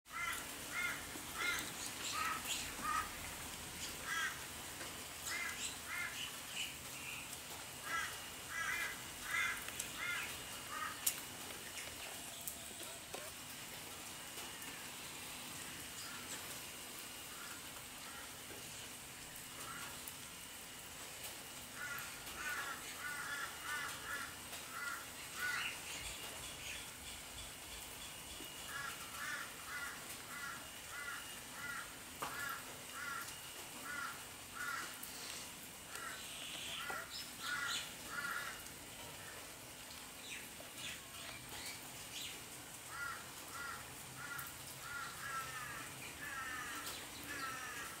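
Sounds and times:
bird harsh repeated calls: 0:00.1 - 0:03.2
steady background hiss: 0:00.1 - 0:48.0.

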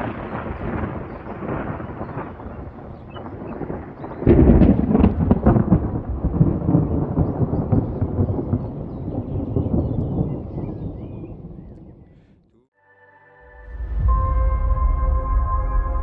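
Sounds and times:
thunderclap rumbling: 0:00.0 - 0:12.2.

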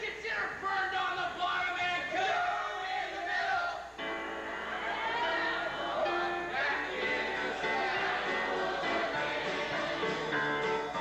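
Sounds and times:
performers singing: 0:04.6 - 0:11.0.

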